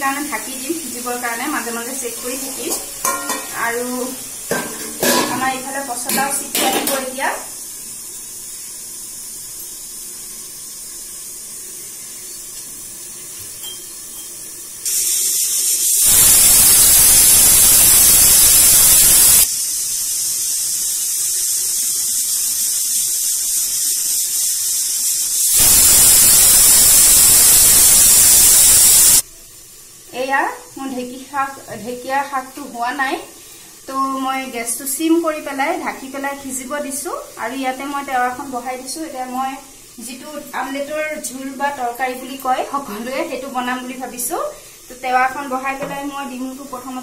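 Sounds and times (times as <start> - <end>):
pressure cooker whistle venting steam: 13.6 - 29.3.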